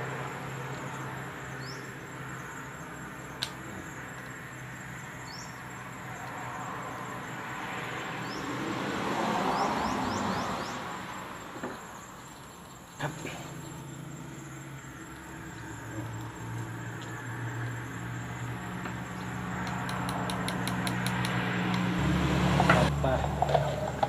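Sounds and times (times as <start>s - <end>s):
vehicle passing: 3.8s - 11.6s, 13.0s - 24.0s.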